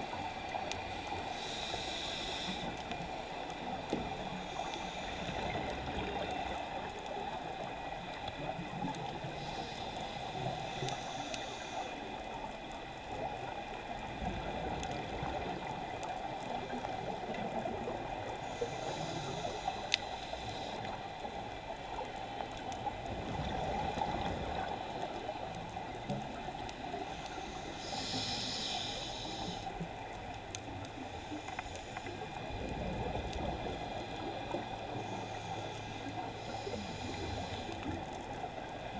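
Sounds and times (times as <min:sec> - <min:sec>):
crackling underwater background: 0:00.0 - 0:38.9
diver inhaling through regulator: 0:01.3 - 0:02.9, 0:09.3 - 0:12.0, 0:18.4 - 0:21.0, 0:27.2 - 0:29.7, 0:35.0 - 0:38.0.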